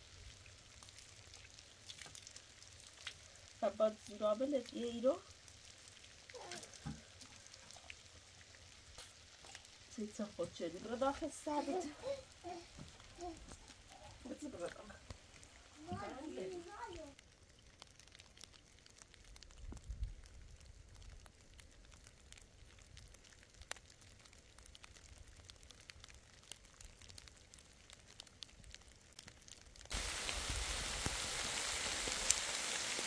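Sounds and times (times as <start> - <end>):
heavy rain hiss: 0.0 - 0.3, 9.8 - 17.2, 29.9 - 33.0
scattered rain drips: 0.0 - 33.0.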